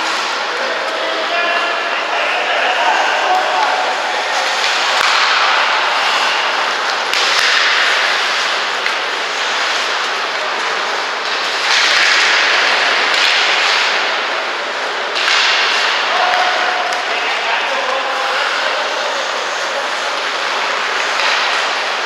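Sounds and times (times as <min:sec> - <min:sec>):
skate blades scraping ice: 0:04.3 - 0:14.4.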